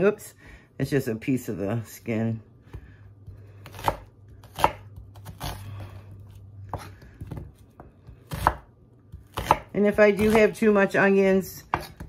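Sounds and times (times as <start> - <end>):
knife slicing onion: 2.6 - 12.0.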